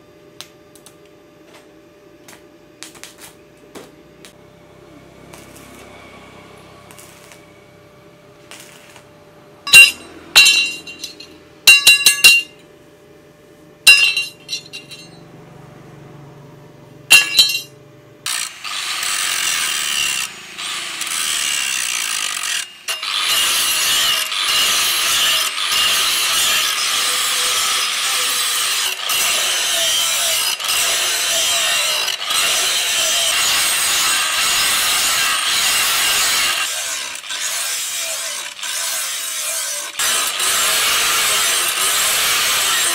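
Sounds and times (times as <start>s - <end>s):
hand tool rasping steel: 9.7s - 12.5s, 21.0s - 42.9s
strikes on ringing steel: 9.7s - 12.6s, 13.9s - 15.2s, 17.1s - 17.7s.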